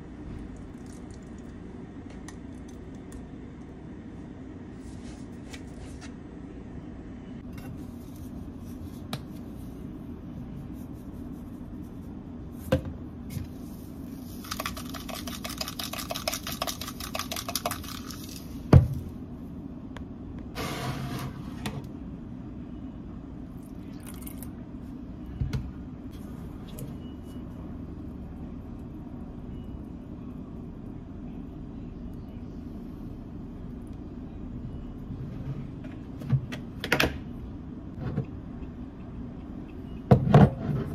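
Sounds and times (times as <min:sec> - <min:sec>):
steady low hum: 0:00.0 - 0:40.9
pepper mill ticking: 0:14.4 - 0:18.2.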